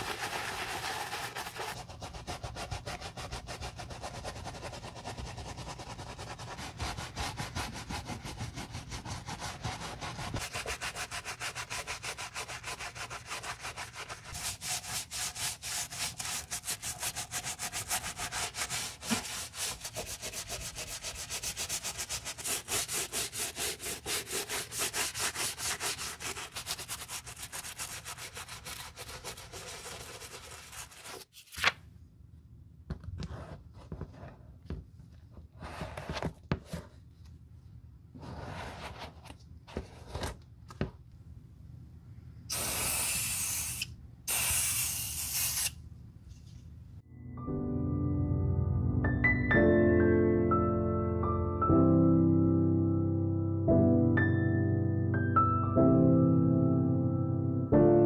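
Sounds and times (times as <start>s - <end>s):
brush scrubbing a sneaker: 0.0s - 31.3s.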